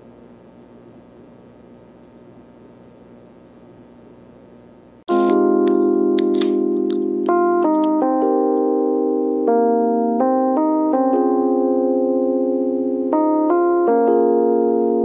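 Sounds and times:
keyboard music: 5.1s - 15.0s.

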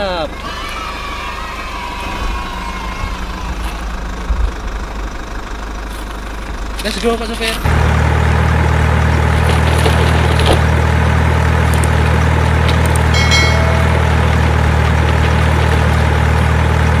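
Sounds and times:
truck engine drone: 0.0s - 17.0s
short bright chime: 13.1s - 14.4s.

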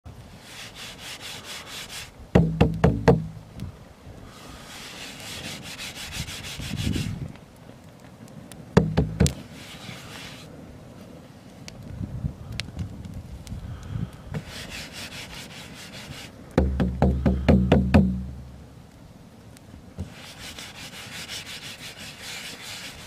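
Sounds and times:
soft rubbing hiss: 0.1s - 17.5s, 18.1s - 23.0s
frame drum tapped by hand: 2.4s - 3.4s, 8.8s - 9.3s, 16.6s - 18.5s.

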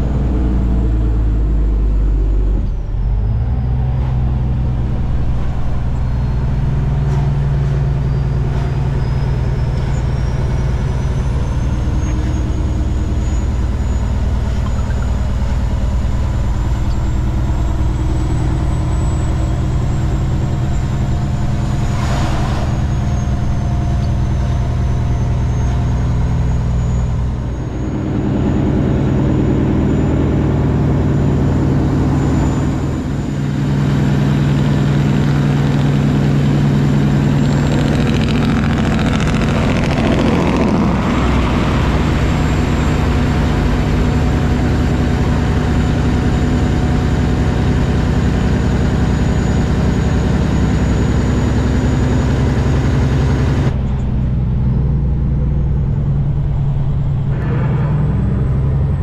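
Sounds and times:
truck diesel engine running: 0.0s - 59.0s
rush of noise: 20.1s - 34.2s, 55.2s - 59.0s.

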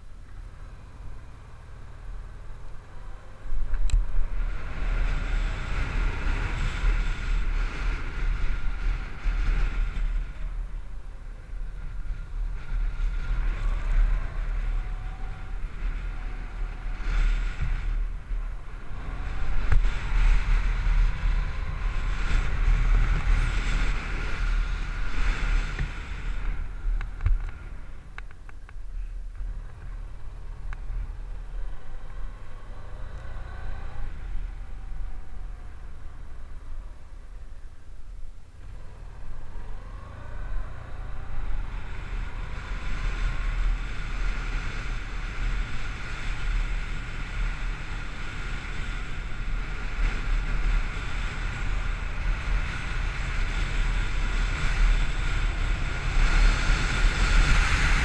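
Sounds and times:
motorcycle engine rumble: 0.0s - 58.0s.

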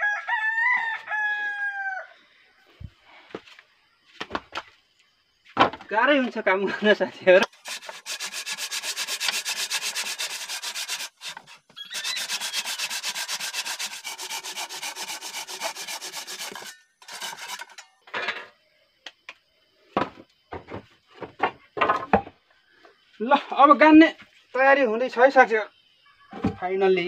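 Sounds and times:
knocks: 5.6s - 5.9s
handsaw cutting through log: 7.5s - 17.8s.

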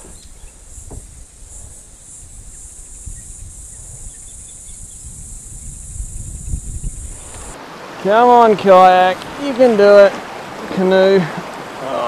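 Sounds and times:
high insect drone: 0.0s - 7.6s.

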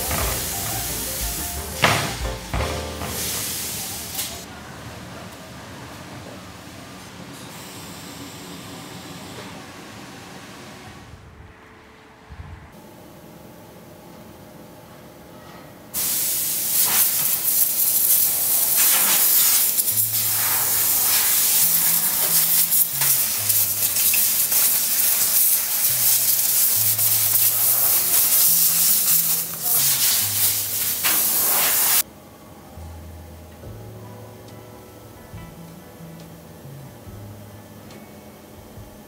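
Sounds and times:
pneumatic hose gun hissing: 16.0s - 32.0s.

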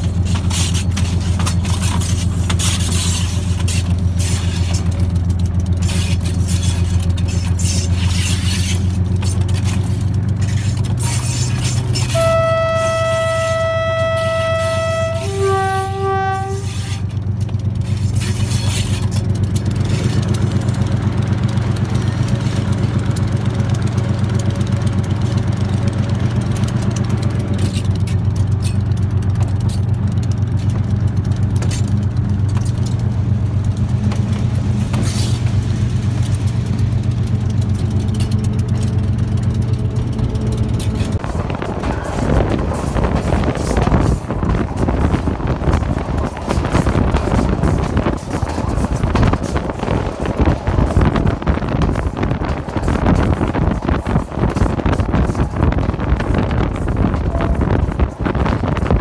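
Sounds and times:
locomotive running: 0.0s - 59.0s
locomotive horn blast: 11.3s - 17.1s, 56.6s - 58.9s.

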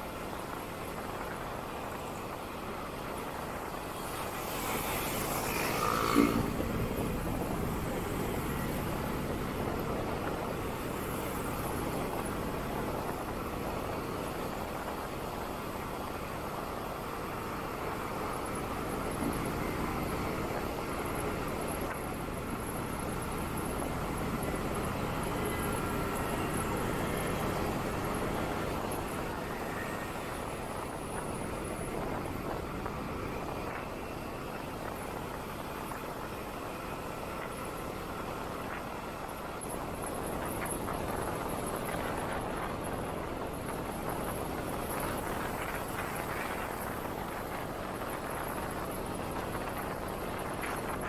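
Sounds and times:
surrounding traffic: 0.0s - 51.0s
tyre and wind noise: 0.0s - 51.0s
passing vehicle pitched sound: 4.8s - 9.1s
motorcycle engine: 5.4s - 9.0s.

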